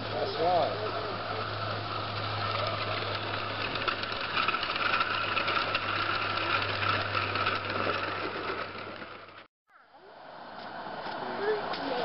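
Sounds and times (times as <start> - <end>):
steam locomotive chuffing: 0.0 - 9.5.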